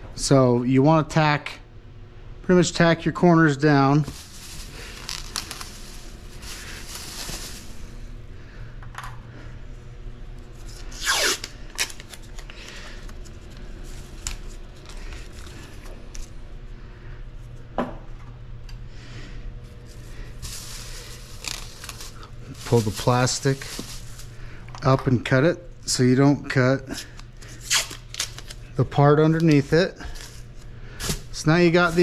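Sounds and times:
steady low hum: 0:00.0 - 0:32.0
plastic sheeting rustling: 0:04.0 - 0:08.0, 0:20.3 - 0:24.4, 0:31.0 - 0:32.0
masking tape ripping off roll: 0:04.2 - 0:05.9, 0:10.8 - 0:12.4, 0:20.5 - 0:22.9, 0:27.6 - 0:28.6.

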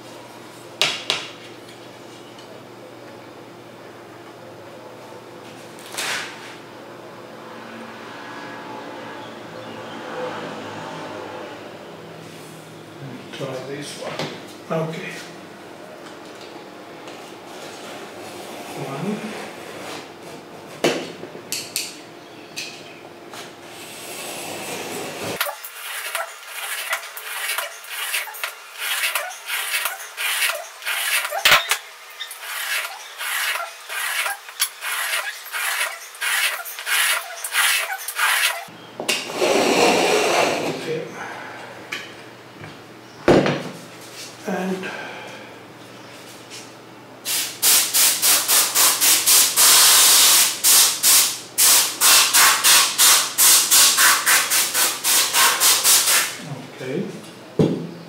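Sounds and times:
knife blade scraping metal: 0:25.4 - 0:38.7.

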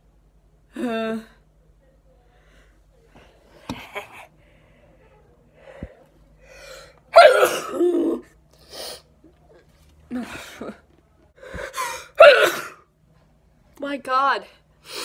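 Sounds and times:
woman breathing: 0:04.3 - 0:07.1
woman sneezing: 0:07.1 - 0:08.2, 0:11.7 - 0:12.8.

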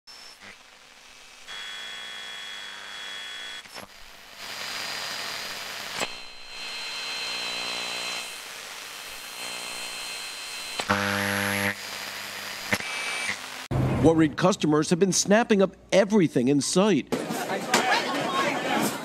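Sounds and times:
buzz: 0:00.1 - 0:13.7
tv static hiss: 0:00.1 - 0:13.7
steady high whine: 0:00.1 - 0:14.2.

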